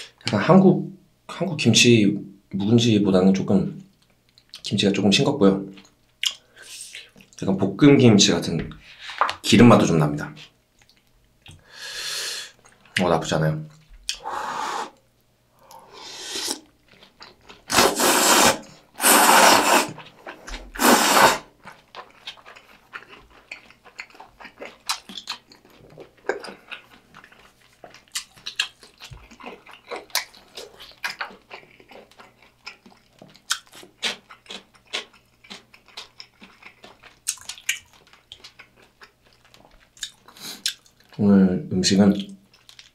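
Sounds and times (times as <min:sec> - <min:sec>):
person slurping noodles: 0:14.2 - 0:14.9, 0:15.8 - 0:16.7, 0:17.7 - 0:20.0, 0:20.7 - 0:21.5
wet chewing mouth clicks: 0:15.6 - 0:41.2.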